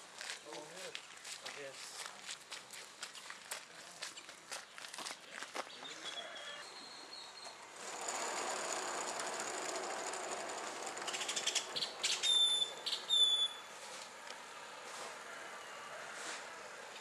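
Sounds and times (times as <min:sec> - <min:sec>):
high falling squeals: 0:06.2 - 0:13.8
rail cart wheels rolling: 0:07.3 - 0:17.0
fast rattling clacks: 0:07.8 - 0:11.9.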